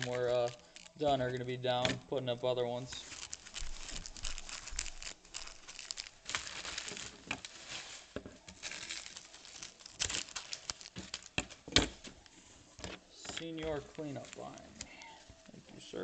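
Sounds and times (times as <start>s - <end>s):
card pack wrapper tearing: 0.0s - 1.4s, 2.8s - 12.3s.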